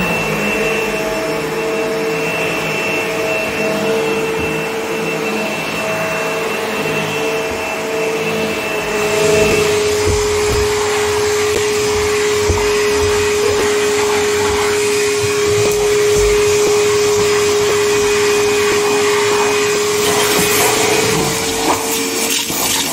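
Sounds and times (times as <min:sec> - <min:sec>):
vacuum cleaner running: 0:00.0 - 0:22.9
soft bumps: 0:08.8 - 0:18.1.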